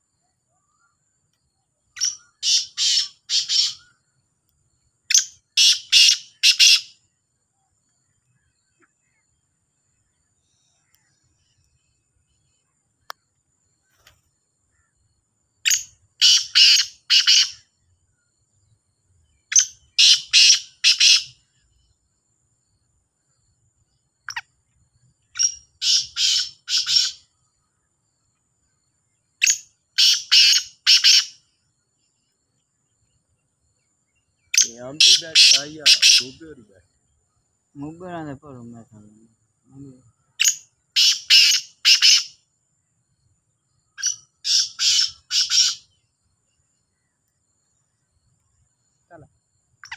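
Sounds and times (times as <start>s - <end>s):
francolin calling harshly: 1.9s - 4.0s, 5.1s - 7.0s, 15.6s - 17.7s, 19.5s - 21.5s, 25.3s - 27.3s, 29.4s - 31.5s, 34.4s - 36.7s, 39.8s - 42.4s, 43.9s - 46.0s.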